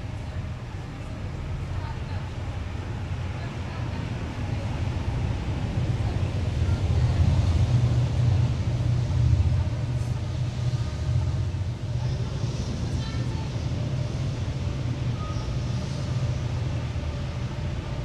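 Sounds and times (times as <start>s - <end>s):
car engines and tyres rumbling: 0.0s - 18.0s.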